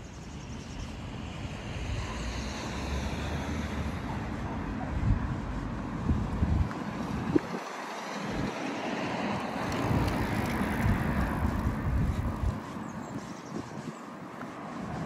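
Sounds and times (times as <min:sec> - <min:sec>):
wind buffeting microphone: 0:03.9 - 0:15.0.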